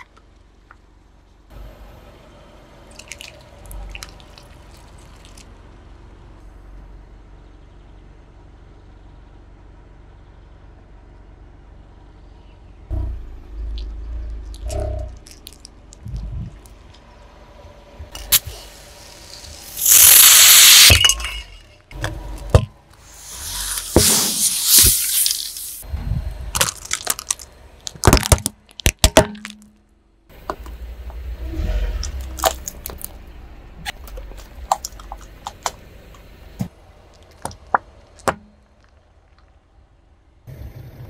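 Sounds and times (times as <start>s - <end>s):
low rumble: 12.8s - 19.6s, 25.8s - 27.9s
loud hissing burst: 18.3s - 21.2s, 23.0s - 25.8s.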